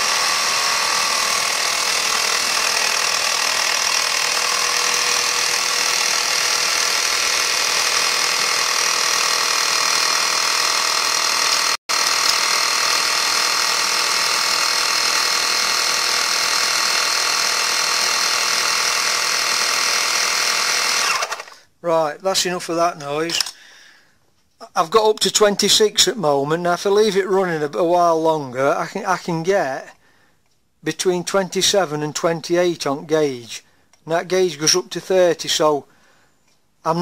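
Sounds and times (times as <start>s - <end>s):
small compressor running: 0.0s - 21.7s.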